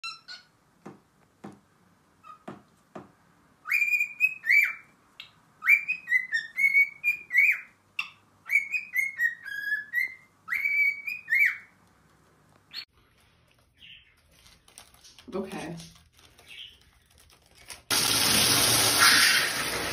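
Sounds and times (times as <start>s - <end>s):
cockatiel whistling: 3.6s - 11.7s.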